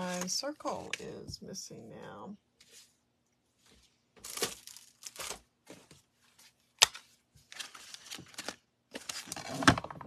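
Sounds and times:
paper rustling and crinkling: 3.6s - 9.8s.

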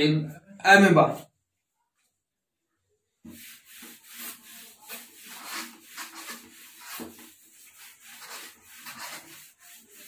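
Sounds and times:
whiteboard being wiped: 3.2s - 10.0s.

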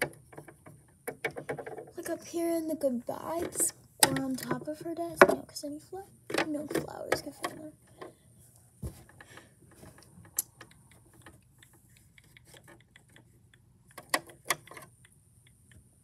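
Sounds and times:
small objects clicking and tapping: 9.1s - 15.9s.

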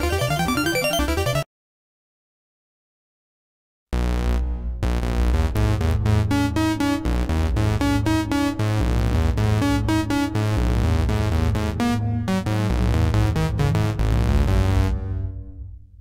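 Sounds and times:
pulsing bass line: 4.0s - 16.0s.

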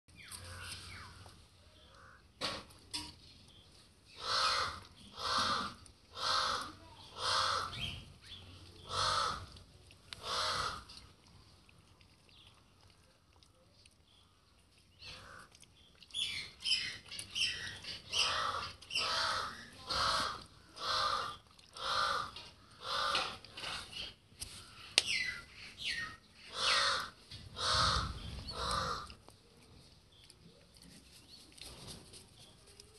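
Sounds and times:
crow cawing: 4.2s - 7.8s, 8.9s - 9.5s, 10.2s - 10.9s, 18.2s - 23.4s, 26.5s - 29.1s.

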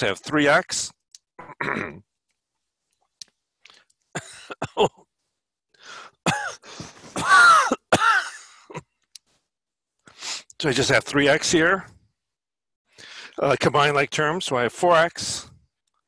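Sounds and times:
man clearing throat: 1.4s - 2.0s, 4.2s - 5.1s, 6.3s - 8.9s
man coughing: 1.4s - 2.0s, 4.2s - 5.1s, 6.2s - 8.9s.

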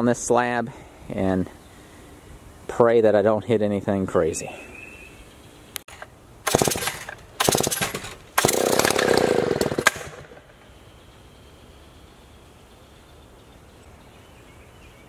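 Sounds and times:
chainsaw starting and dying: 6.5s - 10.4s.

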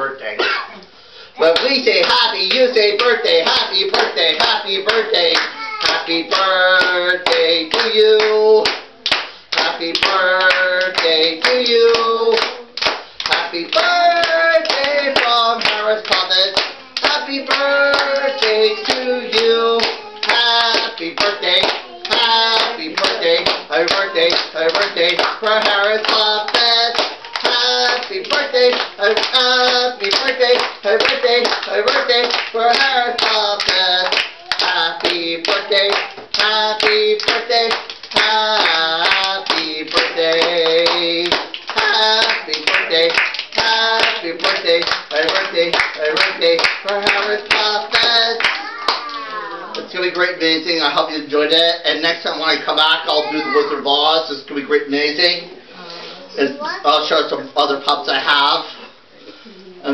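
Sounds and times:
rhythmic hand clapping: 1.5s - 51.1s.

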